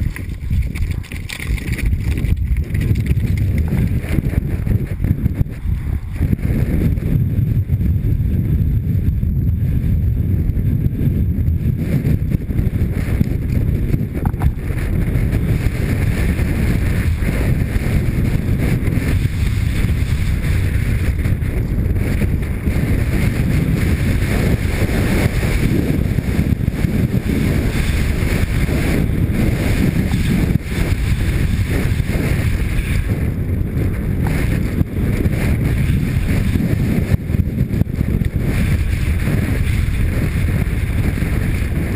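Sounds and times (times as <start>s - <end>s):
tyres rattling over rocky dirt: 0.0s - 4.5s
wind rushing over microphone: 0.0s - 41.9s.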